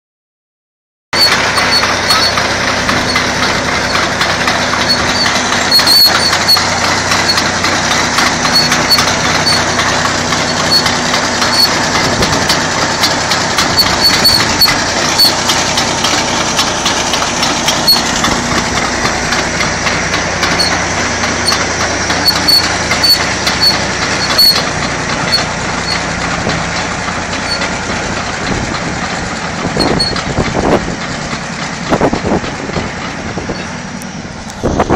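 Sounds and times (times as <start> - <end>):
bulldozer diesel engine running: 1.2 - 34.9
steel tracks clattering and squeaking: 1.2 - 34.9.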